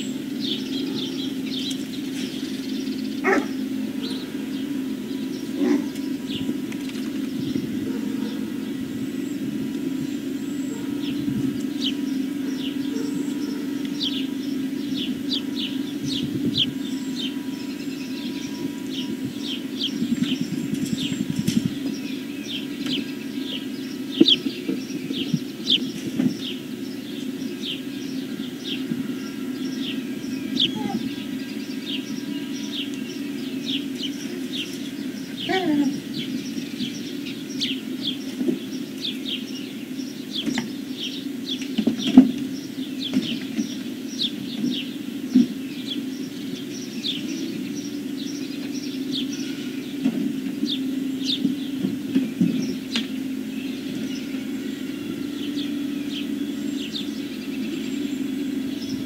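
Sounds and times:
low hum: 0.0s - 41.6s
small birds chirping: 0.0s - 59.0s
falling whine: 45.3s - 59.0s.

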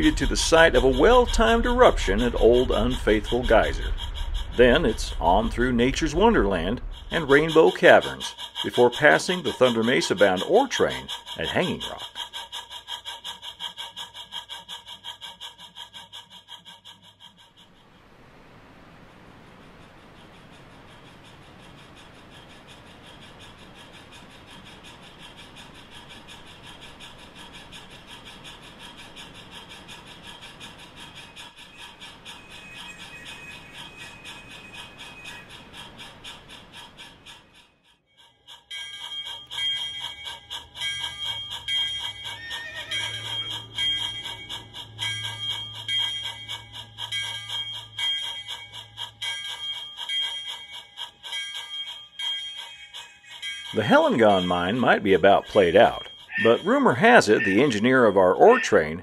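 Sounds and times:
low hum: 0.0s - 8.9s
bell ringing rapidly: 0.0s - 12.1s, 31.2s - 35.6s, 38.2s - 59.0s
model steam train chuffing: 0.0s - 59.0s.

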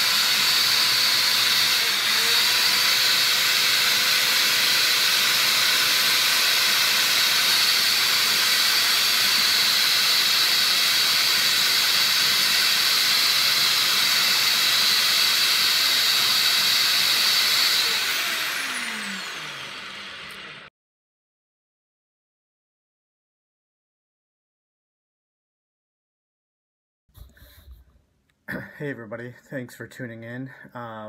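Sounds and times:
electric drill sanding wood: 0.0s - 20.7s.

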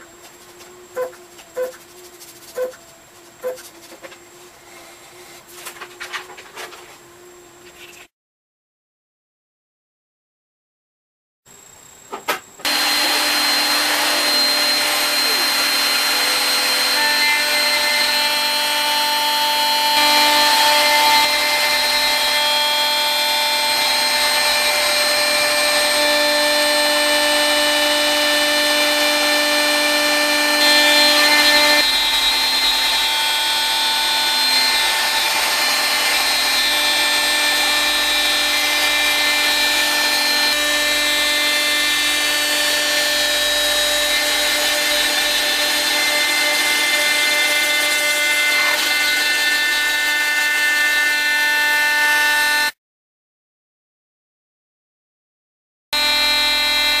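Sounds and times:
router spindle whining: 0.0s - 7.7s, 12.6s - 52.8s, 56.0s - 57.0s
cutter milling a panel: 12.6s - 52.8s, 56.0s - 57.0s.

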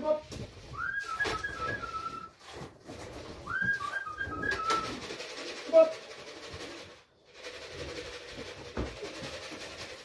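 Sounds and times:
person whistling: 0.8s - 2.4s, 3.5s - 5.0s.

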